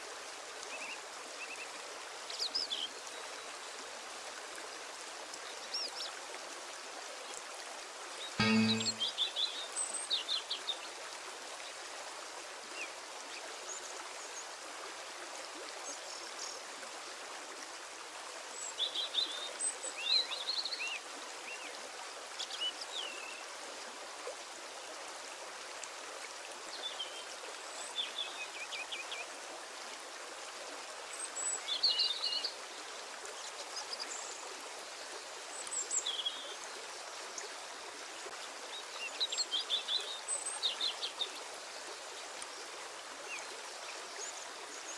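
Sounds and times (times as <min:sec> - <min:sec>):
bird chirps: 0:08.4 - 0:09.0.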